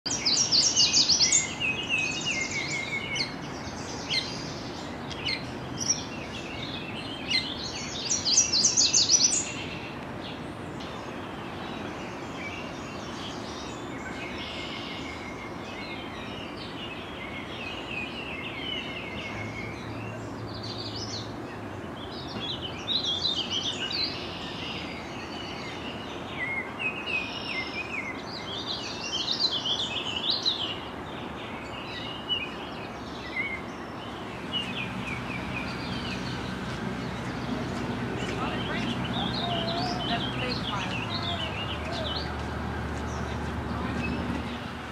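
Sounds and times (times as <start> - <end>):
songbirds singing: 0.0 - 44.9
outdoor background hiss: 0.1 - 44.9
warbled bird phrases: 37.2 - 42.5.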